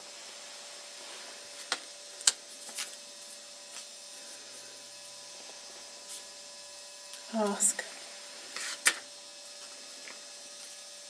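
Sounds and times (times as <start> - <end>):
faint hum: 0.0 - 11.0
steady hiss: 0.0 - 11.0.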